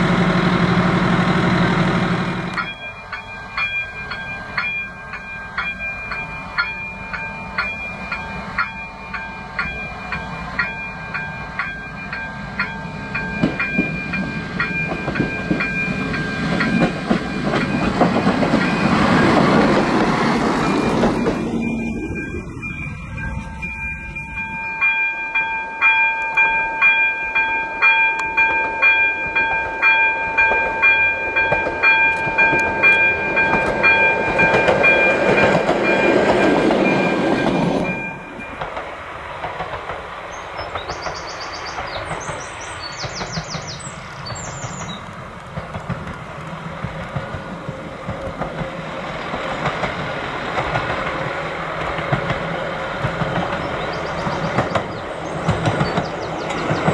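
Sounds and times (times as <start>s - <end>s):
diesel railcar engine and wheels: 0.0s - 56.9s
level crossing bell ringing: 2.5s - 17.8s, 20.7s - 38.6s.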